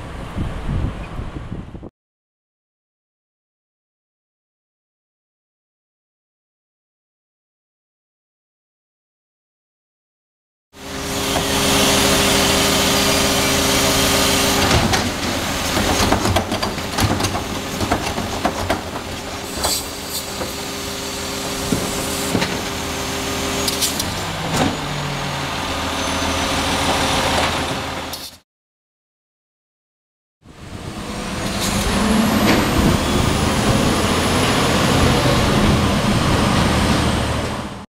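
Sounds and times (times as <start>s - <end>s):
wind on microphone: 0.0s - 1.9s
garbage truck engine running: 10.8s - 28.2s, 30.5s - 37.8s
hydraulic cart tipper: 10.8s - 28.4s, 30.6s - 37.8s
cart clanking and banging: 11.2s - 25.2s, 31.3s - 37.6s.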